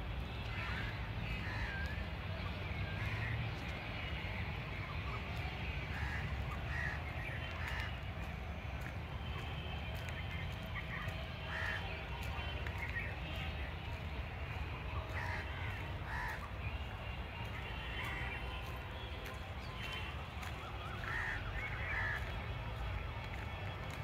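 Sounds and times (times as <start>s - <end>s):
birds calling: 3.0s - 8.9s, 10.3s - 14.1s, 14.8s - 22.6s.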